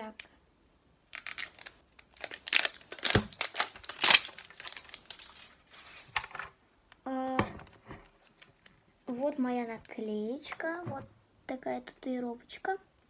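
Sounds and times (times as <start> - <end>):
wrapper crinkling and tearing: 1.1 - 6.2.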